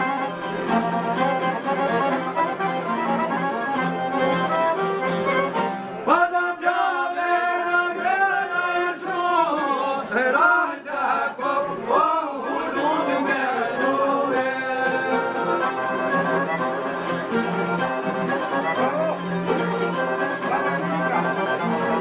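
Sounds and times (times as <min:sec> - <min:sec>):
plucked lutes: 0:00.0 - 0:06.1, 0:11.4 - 0:22.0
accordion: 0:00.0 - 0:06.4, 0:07.3 - 0:22.0
man singing: 0:06.0 - 0:16.7.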